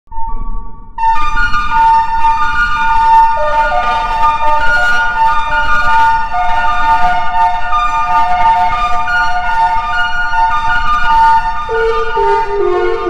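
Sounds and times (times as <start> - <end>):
ambient music of long held tones: 0.1 - 13.0.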